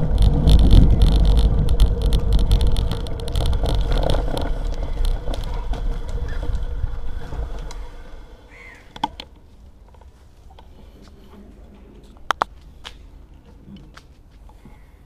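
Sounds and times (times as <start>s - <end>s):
wind buffeting: 0.0s - 9.0s
bicycle tyre rumble on tarmac: 0.0s - 13.2s.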